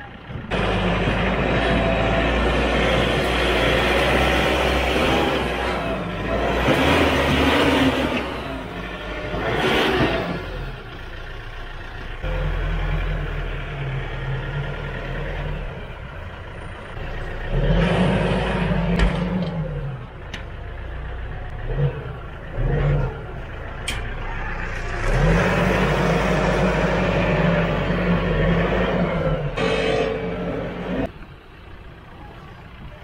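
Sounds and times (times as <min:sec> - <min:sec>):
tractor diesel engine revving: 0:00.0 - 0:33.0.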